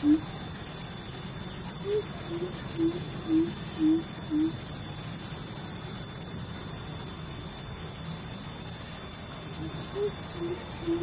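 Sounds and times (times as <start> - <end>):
bird giving deep hoots: 0.0 - 0.2, 1.9 - 4.6, 9.6 - 11.0
insects droning: 0.0 - 11.0.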